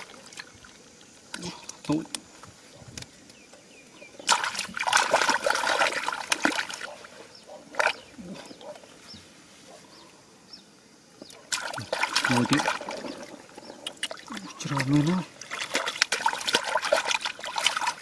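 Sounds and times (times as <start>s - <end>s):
hands splashing in shallow water: 4.2s - 6.9s, 11.5s - 18.0s.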